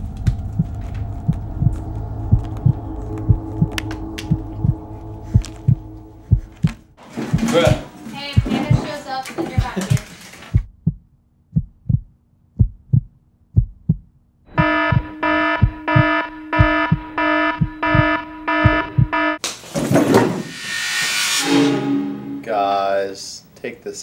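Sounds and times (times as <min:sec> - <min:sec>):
faint hum: 0:00.0 - 0:07.0
loud rushing noise: 0:00.0 - 0:07.0
heartbeat thumps: 0:00.0 - 0:19.4
pulsing electronic alarm tone: 0:00.4 - 0:06.8, 0:14.5 - 0:19.4.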